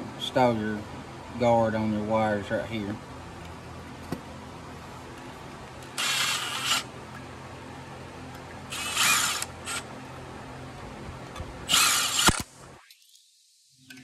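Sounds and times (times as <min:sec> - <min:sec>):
cordless power driver running: 0:05.8 - 0:06.9, 0:08.7 - 0:09.9, 0:11.3 - 0:12.5.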